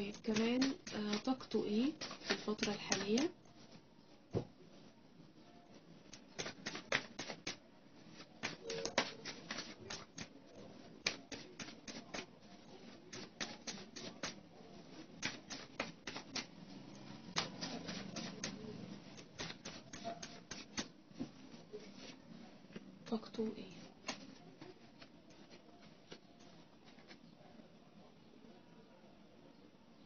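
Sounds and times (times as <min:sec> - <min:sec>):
cards being shuffled: 0:00.1 - 0:03.4, 0:06.1 - 0:10.4, 0:11.0 - 0:22.2, 0:23.8 - 0:27.2.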